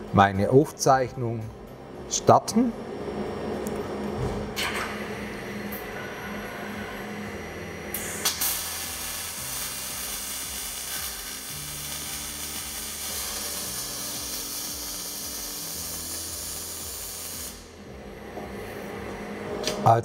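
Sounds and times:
welding arc crackling: 7.9 - 17.8.

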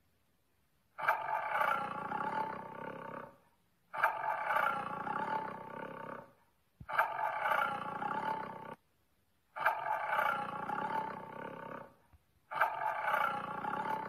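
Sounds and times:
creature roaring: 1.0 - 3.4, 4.0 - 6.3, 6.9 - 8.8, 9.6 - 14.0.

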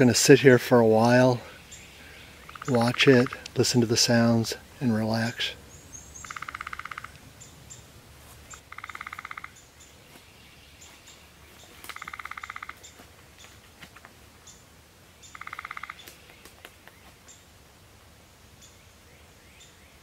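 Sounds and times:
bird trilling: 1.7 - 3.4, 5.8 - 7.2, 8.5 - 9.6, 11.9 - 12.9, 15.3 - 16.3.

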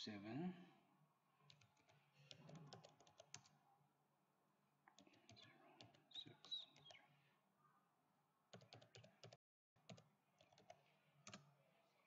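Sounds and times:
computer keyboard typing: 1.4 - 3.6, 4.9 - 7.0, 8.5 - 11.5.

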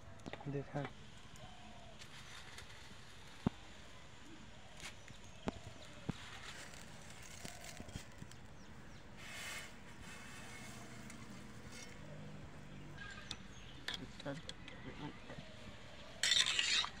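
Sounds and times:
noodles hissing in hot pan: 9.2 - 11.0.

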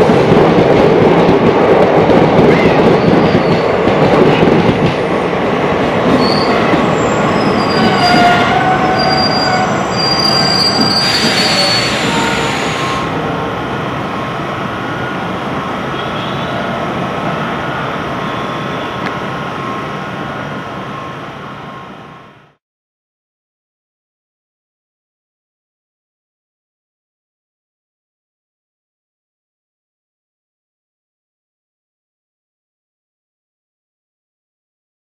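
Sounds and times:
train rolling rumble: 0.0 - 22.4
train wheels squealing: 2.9 - 3.7, 6.1 - 13.1, 15.9 - 19.9.

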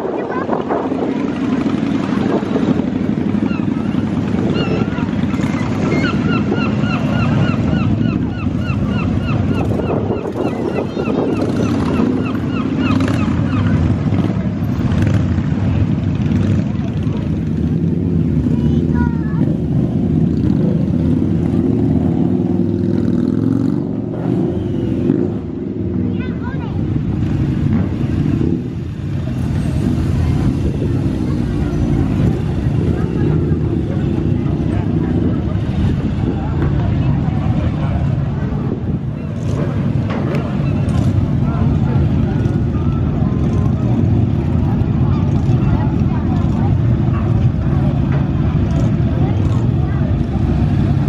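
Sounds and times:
motorcycle engines rumbling: 0.0 - 51.0
motorcycle engine revving: 0.2 - 51.0
bird calling rapid notes: 3.4 - 13.9.

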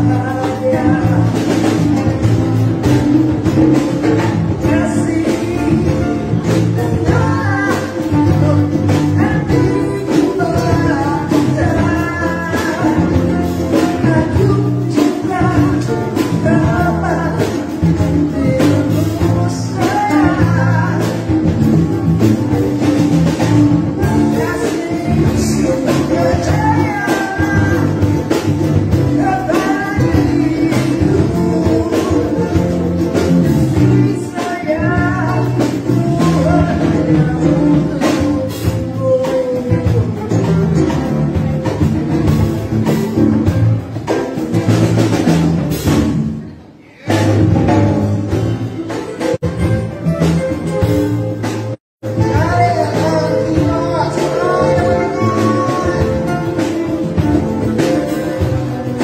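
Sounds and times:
acoustic guitar: 0.0 - 59.0
electric bass: 0.0 - 59.0
woman singing: 52.2 - 57.0.

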